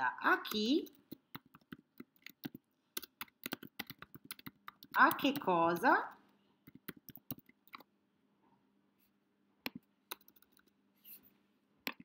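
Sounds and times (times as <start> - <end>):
keyboard keystrokes: 1.1 - 5.5, 6.7 - 7.9, 9.7 - 10.7.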